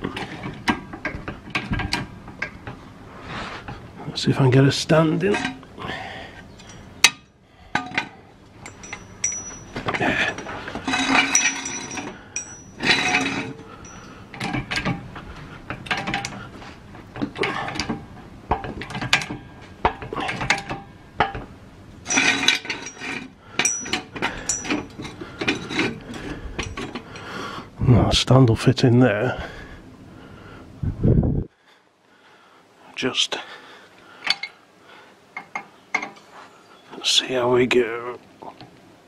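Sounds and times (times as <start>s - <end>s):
metal clinks and scraping: 5.1s - 5.7s, 6.4s - 27.3s, 34.2s - 34.6s
metallic ring: 6.6s - 15.0s, 19.0s - 26.0s.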